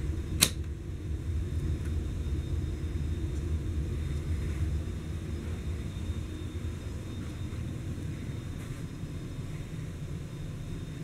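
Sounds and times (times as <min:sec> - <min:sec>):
ceiling fan running: 0:00.0 - 0:11.0
sharp click: 0:00.4 - 0:00.7.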